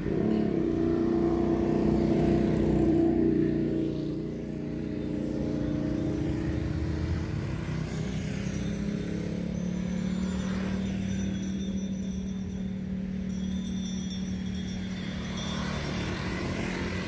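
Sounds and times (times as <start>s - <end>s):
motorbikes and cars passing: 0.0s - 17.0s
steady engine hum: 0.0s - 17.0s.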